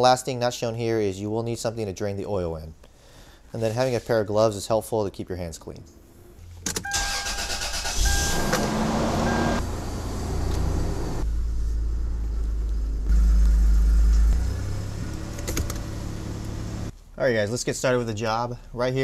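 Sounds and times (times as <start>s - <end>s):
truck engine rumbling: 6.4s - 16.9s
high steady tone: 8.0s - 9.6s.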